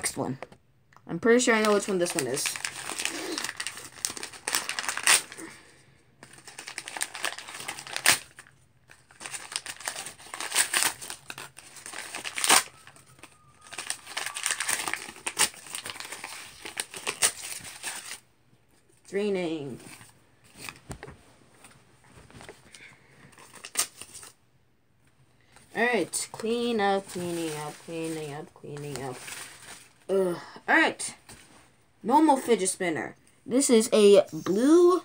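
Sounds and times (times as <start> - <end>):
paper wrapping torn and crumpled: 1.5 - 18.2, 23.3 - 24.4.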